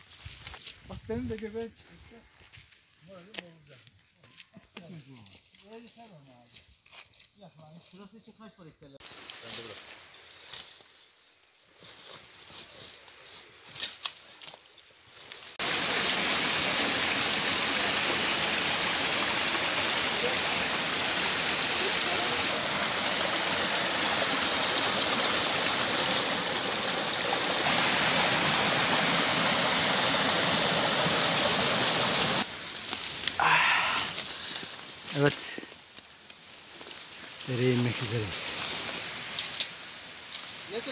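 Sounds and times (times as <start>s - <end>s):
stream rushing over rocks: 15.6s - 35.6s.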